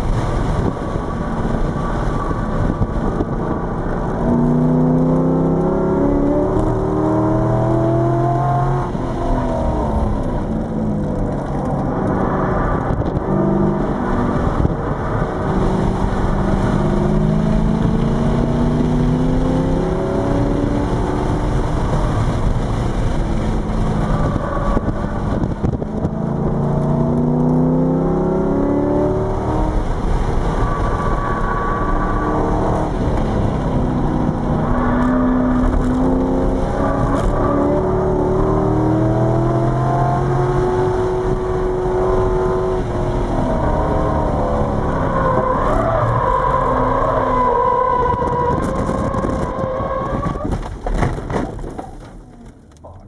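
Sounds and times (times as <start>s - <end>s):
car engine revving: 0.0s - 50.8s
wind noise: 0.0s - 52.6s
tyre noise: 40.8s - 53.0s.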